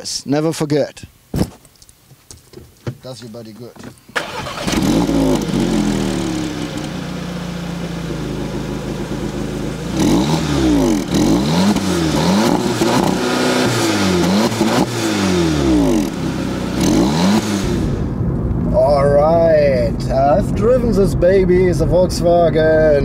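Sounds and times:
car engine idling and revving: 4.2 - 18.6.

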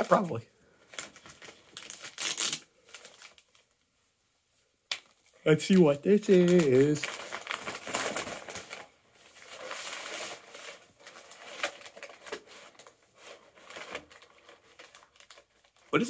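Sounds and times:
paper bag rustling: 5.7 - 16.0.

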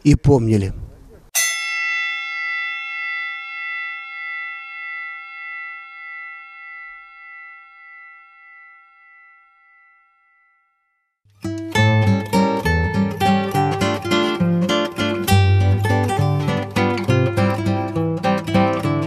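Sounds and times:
bell ringing: 1.4 - 11.2.

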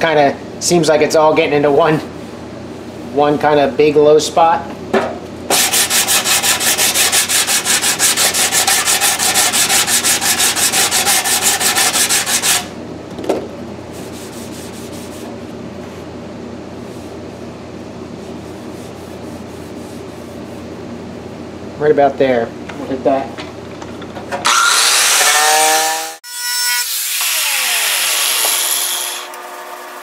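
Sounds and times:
steady low hum: 0.0 - 24.4
sanding block scuffing steel: 5.5 - 12.7, 14.0 - 15.3.

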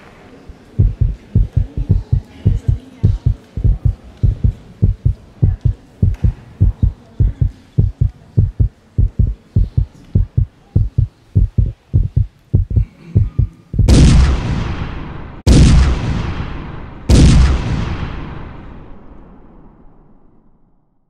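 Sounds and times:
heartbeat thumps: 0.7 - 14.4
loud boom: 13.8 - 20.5.

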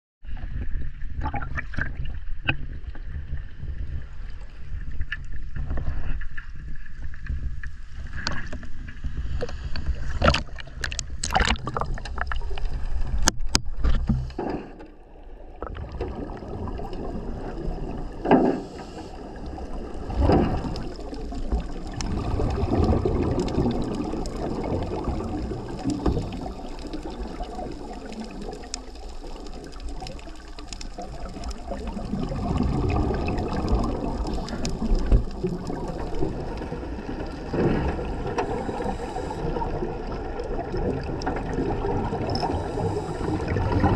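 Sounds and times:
muffled underwater sound: 0.2 - 43.9
sea water splashing and sloshing: 0.2 - 43.9
underwater bubbling: 0.2 - 43.9.

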